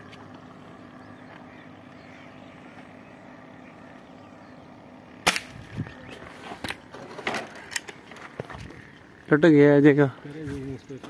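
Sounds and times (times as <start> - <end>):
air rifle shot crack: 5.2 - 5.7.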